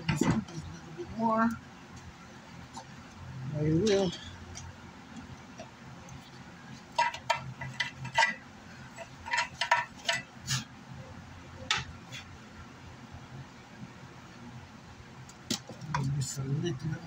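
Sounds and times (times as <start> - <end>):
tool tapping and scraping metal: 5.6 - 10.6.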